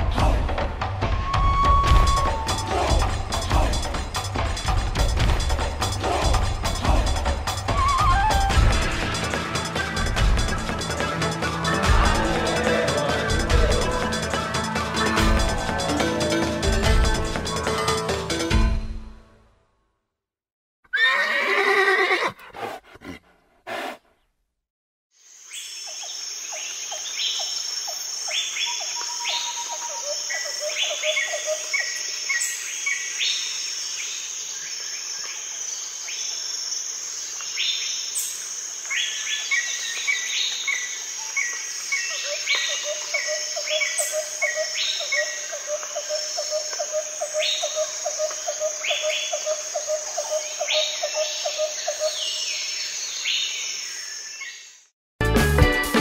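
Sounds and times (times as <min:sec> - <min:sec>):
birds singing and chirping: 0:26.0 - 0:33.7, 0:37.5 - 0:54.8.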